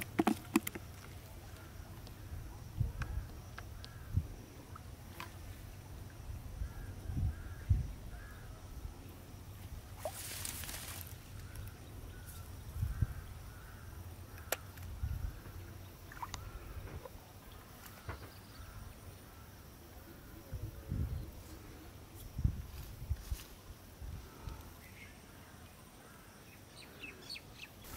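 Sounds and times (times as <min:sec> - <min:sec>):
faint bird calls: 0:06.6 - 0:08.8, 0:10.0 - 0:22.0.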